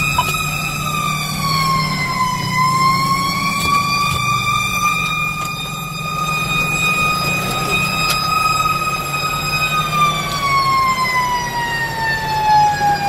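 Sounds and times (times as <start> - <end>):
fire engine siren wailing: 0.0 - 13.0
truck engine rumbling: 0.0 - 13.0.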